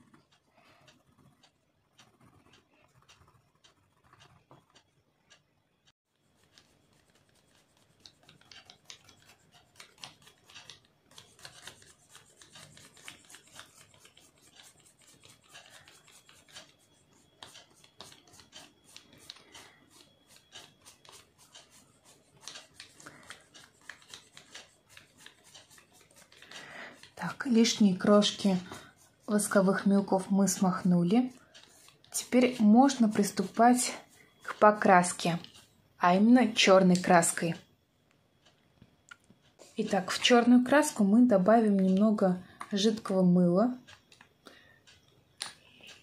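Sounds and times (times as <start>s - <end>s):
crayon scribbling on paper: 0.0s - 4.9s, 6.1s - 35.7s
paintbrush brushing over paper: 0.1s - 5.4s, 6.1s - 35.7s.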